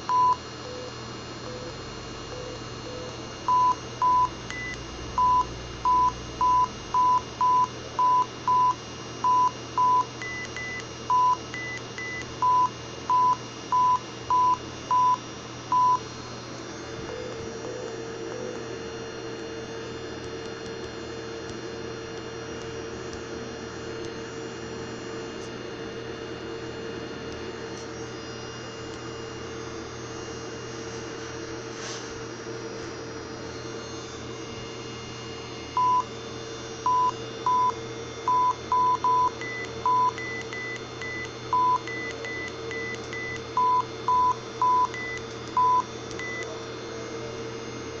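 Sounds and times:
electrical hum: 0.0 - 48.0
fainter higher-pitched beeps: 36.9 - 46.5.

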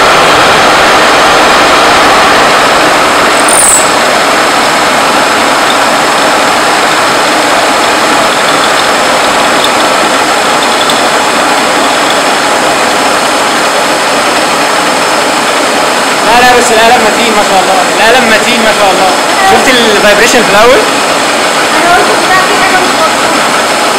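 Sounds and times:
milling machine running under load: 0.0 - 23.9.

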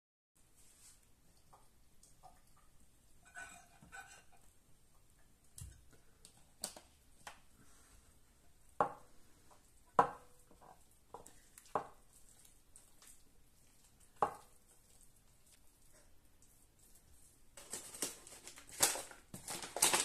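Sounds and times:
dough squishing: 5.6 - 20.0.

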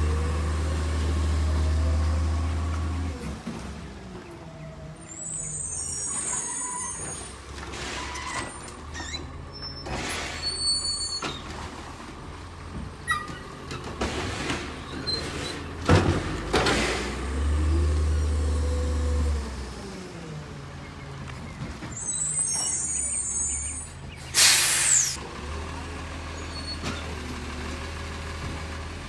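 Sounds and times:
garbage truck engine running: 0.0 - 29.0
air hiss: 24.4 - 25.2.

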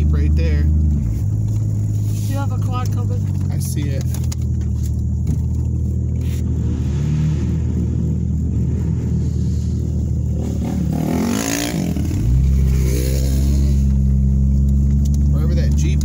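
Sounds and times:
engine revving: 0.0 - 16.0
engine running at low revs: 0.0 - 16.0
quad bike passing: 5.8 - 14.3.

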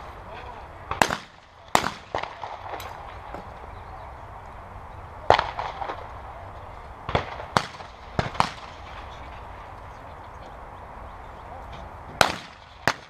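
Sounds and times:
shotgun shots: 0.9 - 3.3, 5.3 - 6.1, 7.1 - 9.3, 12.2 - 13.0.

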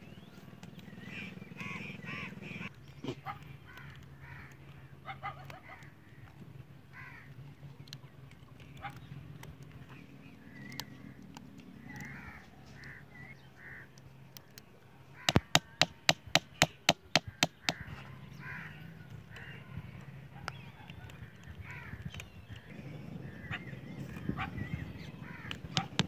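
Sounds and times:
crows cawing: 1.0 - 2.7, 3.3 - 7.4, 11.8 - 14.0, 15.1 - 15.9, 17.2 - 19.9, 21.2 - 22.1, 24.7 - 26.0.

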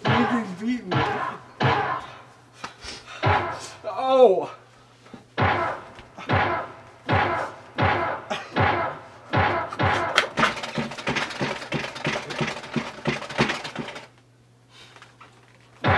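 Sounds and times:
frantic hits: 0.0 - 2.2, 3.2 - 3.8, 5.4 - 14.1.

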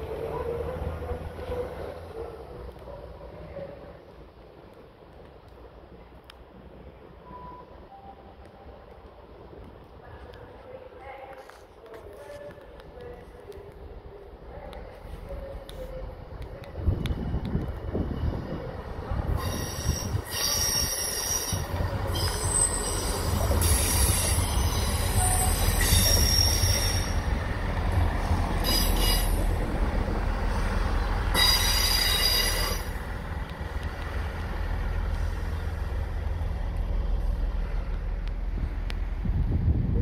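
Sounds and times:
diesel train engine rumble: 0.0 - 11.0, 11.7 - 40.0
train wheels squealing on rail: 19.3 - 27.3, 28.6 - 29.5, 30.5 - 33.0.

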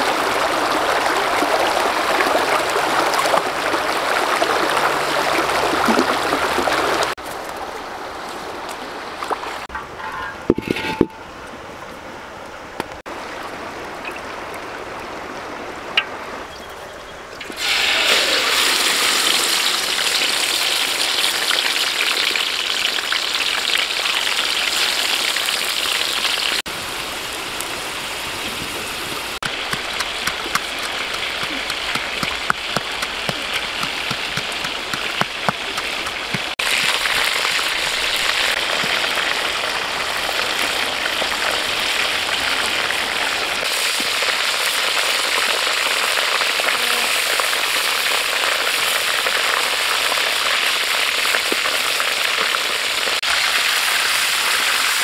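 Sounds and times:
hot oil sizzling in wok: 17.5 - 27.3, 35.8 - 55.0.

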